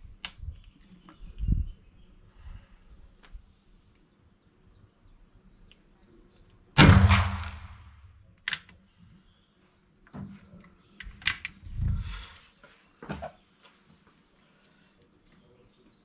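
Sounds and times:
rifle shot: 6.8 - 8.2.

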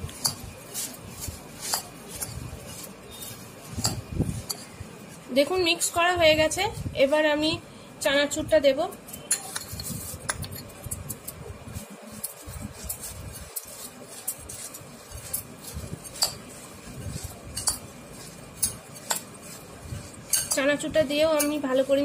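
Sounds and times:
dry mix scraping in bowl: 0.0 - 7.3, 8.8 - 22.0
spoon clinking against glass: 9.1 - 10.7, 17.5 - 17.9, 20.2 - 20.7.

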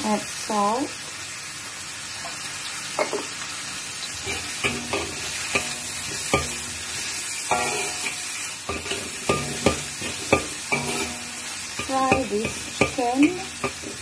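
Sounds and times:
chicken sizzling in hot oil: 0.0 - 14.0
metal spatula scraping wok: 4.2 - 14.0
spatula striking wok: 4.2 - 14.0.

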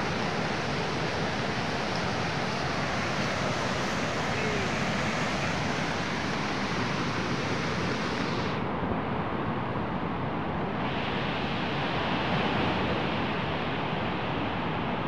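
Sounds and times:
flooded river roaring: 0.0 - 8.7.

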